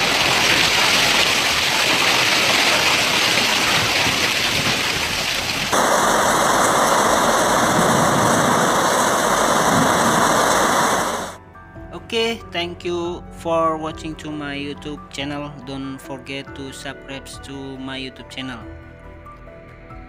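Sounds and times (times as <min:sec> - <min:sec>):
heavy hail and rain: 0:00.0 - 0:11.4.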